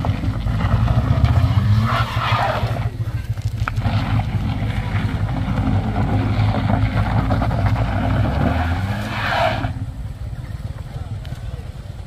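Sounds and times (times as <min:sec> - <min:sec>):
car engine revving hard: 0:00.0 - 0:03.0, 0:03.8 - 0:09.8
tyres scrabbling on gravel: 0:00.0 - 0:11.6.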